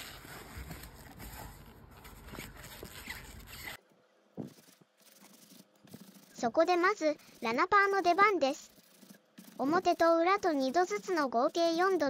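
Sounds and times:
leather rustling and creaking: 0.0s - 3.8s, 4.4s - 6.4s.

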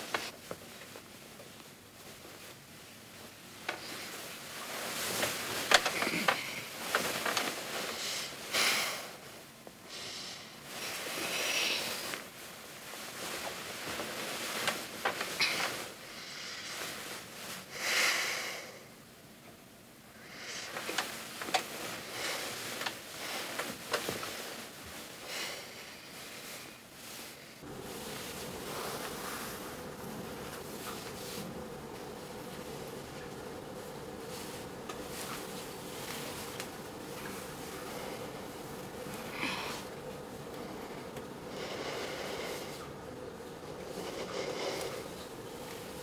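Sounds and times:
bedding rustling: 0.0s - 46.0s
small clicks and creaks: 5.2s - 8.0s.

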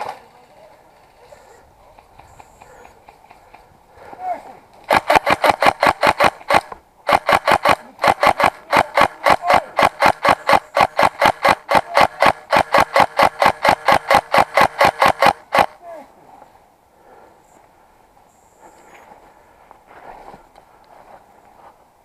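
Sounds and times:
airsoft rifle shots: 4.9s - 15.8s.

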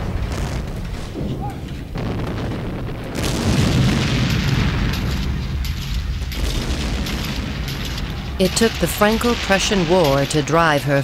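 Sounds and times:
rumbling explosion booms: 0.0s - 11.0s.

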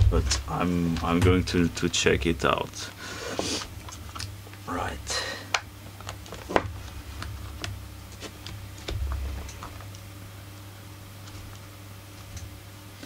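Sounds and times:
dull low bump: 0.0s - 0.6s
steady low hum: 0.0s - 13.0s.

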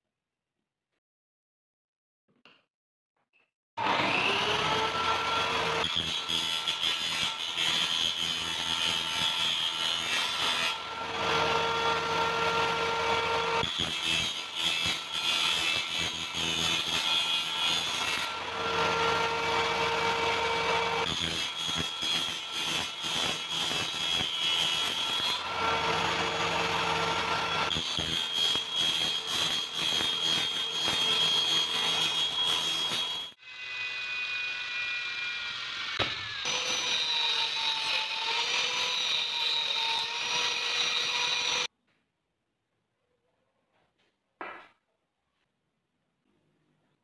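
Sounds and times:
table saw cutting plastic pipe: 3.8s - 41.7s
saw blade spinning whine: 17.8s - 22.7s, 24.6s - 41.7s.

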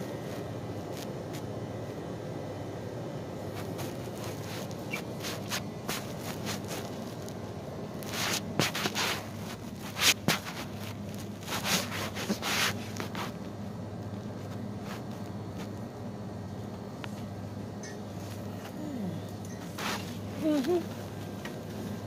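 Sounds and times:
rustling and scraping of handling: 0.0s - 2.0s, 3.4s - 22.0s
low background hum: 0.0s - 22.0s.

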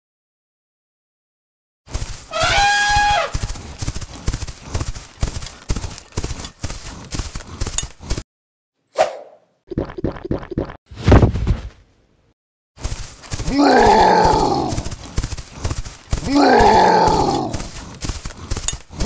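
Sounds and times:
clopping footsteps: 1.9s - 8.2s, 12.8s - 19.0s.

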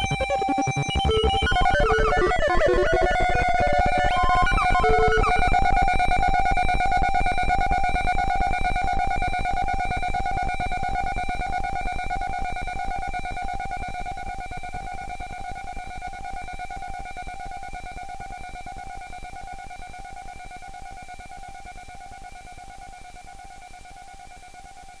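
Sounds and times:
fast pulsing low beat: 0.0s - 3.6s
held synth tone: 0.0s - 5.5s.

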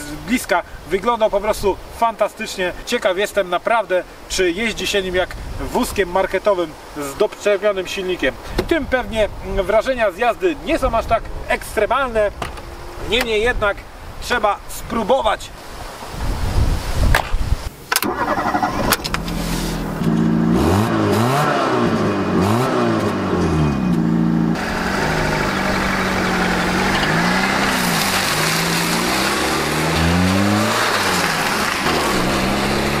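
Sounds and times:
car engine revving: 18.0s - 33.0s
tyres rushing on road: 20.9s - 33.0s.

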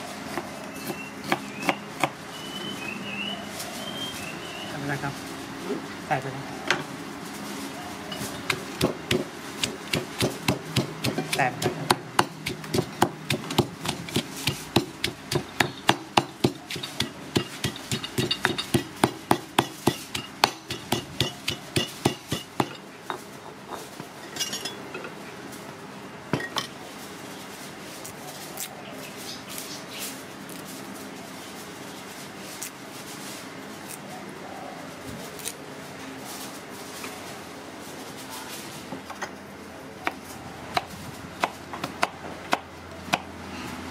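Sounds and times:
stone mortar and pestle pounding: 8.5s - 23.2s
light clinks of bowls and utensils: 23.1s - 25.2s.

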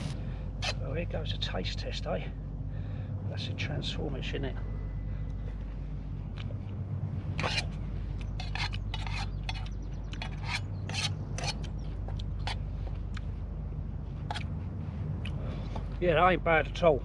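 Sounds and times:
steady low rumble: 0.0s - 17.0s
metal utensil scraping a pan: 7.4s - 7.7s, 8.4s - 11.6s.

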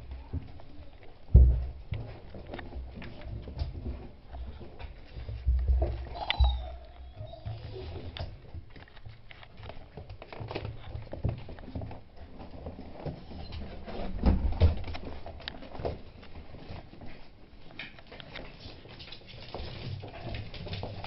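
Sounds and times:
puppy claws pattering on wood floor: 0.0s - 21.0s.

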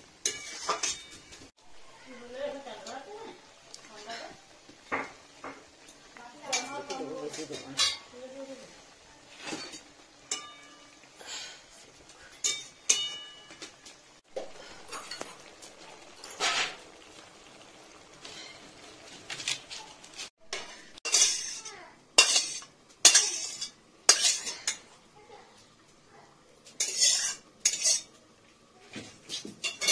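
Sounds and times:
metal utensil scraping pan: 0.2s - 1.5s, 4.9s - 8.2s, 9.3s - 11.6s, 12.2s - 24.9s, 26.7s - 28.2s, 29.3s - 29.9s.

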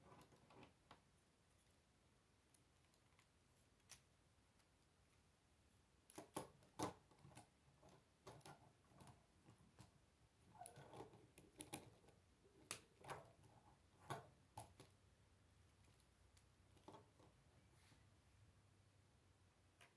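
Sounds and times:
plastic parts clicking together: 10.6s - 15.0s.

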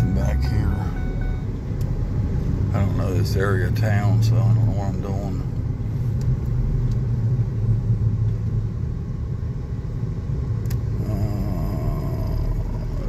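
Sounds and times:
car engine and road rumble: 0.0s - 13.0s.

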